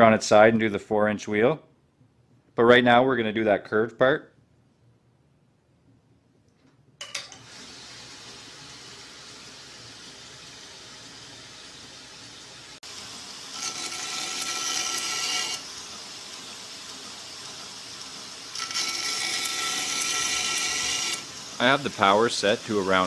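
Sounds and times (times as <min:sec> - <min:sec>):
belt grinder running: 0:07.3 - 0:23.0
harsh grinding on belt: 0:07.3 - 0:23.0.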